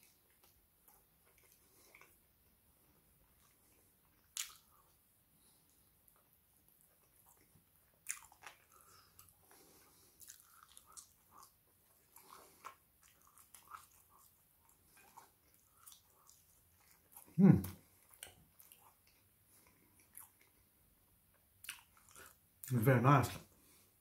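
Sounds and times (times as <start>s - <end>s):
person chewing food: 0.0s - 22.7s
wet mouth clicks: 4.3s - 4.8s.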